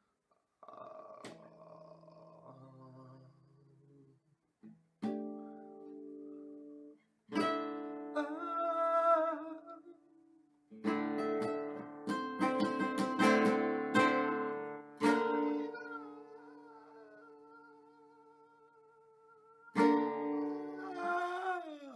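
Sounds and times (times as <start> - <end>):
acoustic guitar strumming: 7.3 - 8.4, 10.8 - 17.6, 19.7 - 21.4
man singing: 8.2 - 10.2, 15.0 - 21.9.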